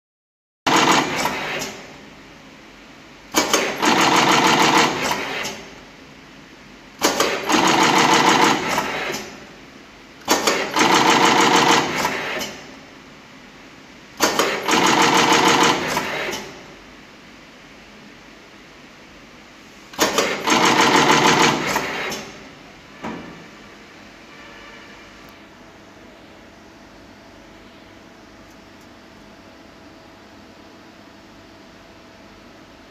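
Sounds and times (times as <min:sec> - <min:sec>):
fast mechanical rattling: 0:00.7 - 0:01.8, 0:03.3 - 0:05.6, 0:07.0 - 0:09.4, 0:10.2 - 0:12.6, 0:14.2 - 0:16.5, 0:20.0 - 0:22.4
quiet steady machine noise: 0:00.7 - 0:32.9.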